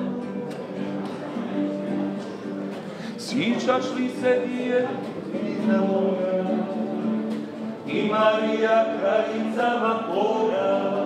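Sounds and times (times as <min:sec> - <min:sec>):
male choir singing harmony: 0:07.8 - 0:11.0.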